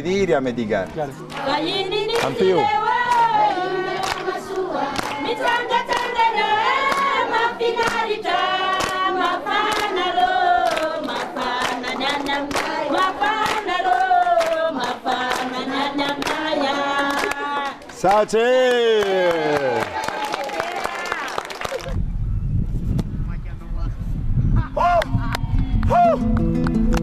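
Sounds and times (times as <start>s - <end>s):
group singing in chorus: 1.2s - 17.8s
hand claps: 2.1s - 2.5s, 3.1s - 3.3s, 4.0s - 7.2s, 7.8s - 8.1s, 8.7s - 10.0s, 10.6s - 22.0s, 25.0s - 27.0s.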